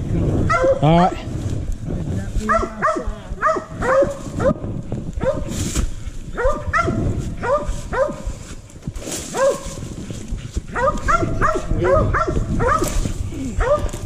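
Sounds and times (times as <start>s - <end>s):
dogs barking: 0.5s - 0.9s, 2.5s - 4.6s, 5.2s - 5.5s, 6.3s - 8.4s, 9.3s - 9.8s, 10.7s - 13.0s, 13.6s - 14.0s.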